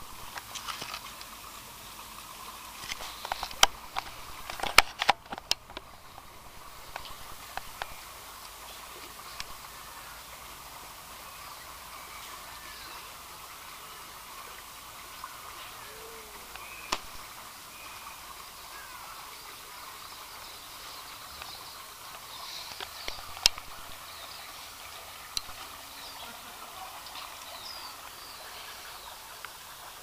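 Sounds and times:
background hiss: 0:00.0 - 0:30.0
small birds chirping: 0:15.0 - 0:29.6.

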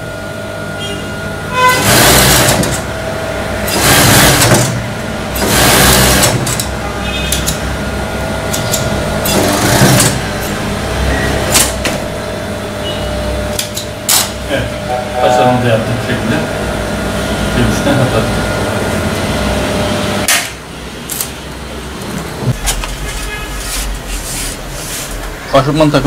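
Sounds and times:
steady machine hum: 0:00.0 - 0:26.0
industrial sewing machine stitching: 0:01.7 - 0:02.9, 0:03.6 - 0:07.6, 0:08.5 - 0:11.9.

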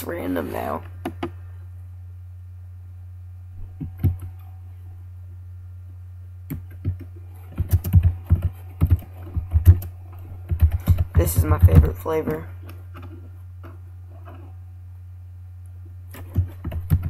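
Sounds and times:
steady low hum: 0:00.0 - 0:17.0
computer keyboard typing: 0:06.5 - 0:09.9, 0:10.5 - 0:12.4, 0:16.1 - 0:17.0.

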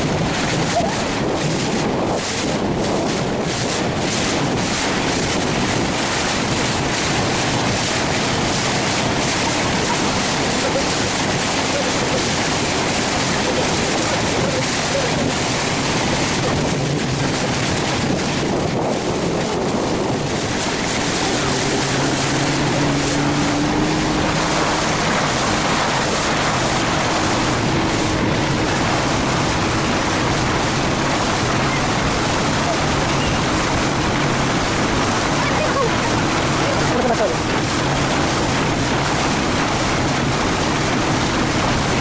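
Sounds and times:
wind and water rushing: 0:00.0 - 0:42.0.

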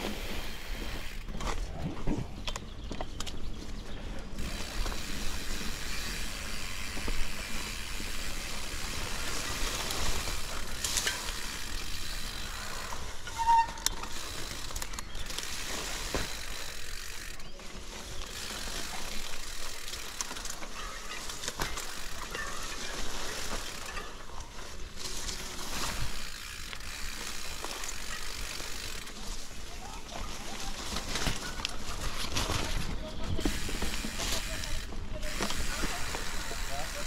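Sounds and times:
grass brushing against bike: 0:00.0 - 0:02.4, 0:03.3 - 0:37.0
bike rattling and ticking: 0:00.0 - 0:37.0
short squeak: 0:13.3 - 0:14.0.

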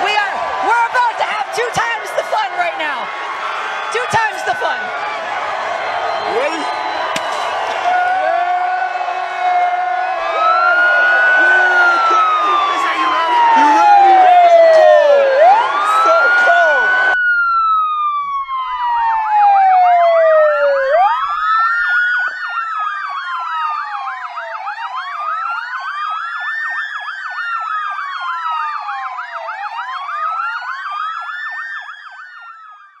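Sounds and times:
fast warbling siren: 0:00.0 - 0:05.0, 0:05.8 - 0:33.0
siren wailing: 0:00.0 - 0:33.0.

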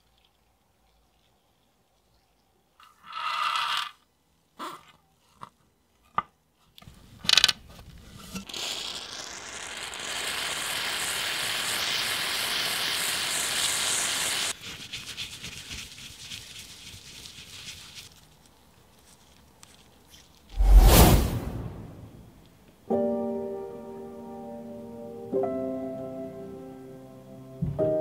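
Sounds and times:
balls rubbing in paper towel: 0:14.6 - 0:20.5.

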